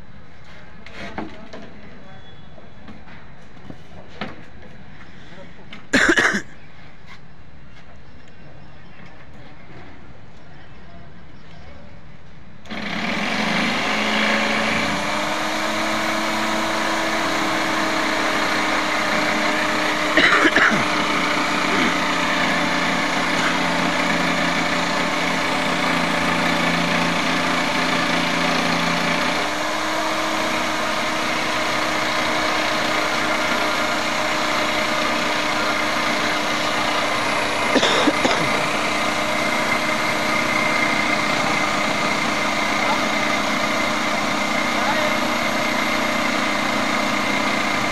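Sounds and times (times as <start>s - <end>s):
jigsaw cutting plywood: 12.7s - 47.9s.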